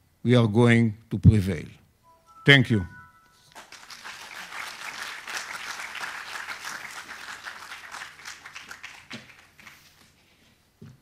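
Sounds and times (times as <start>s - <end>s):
audience applauding: 3.5s - 10.0s.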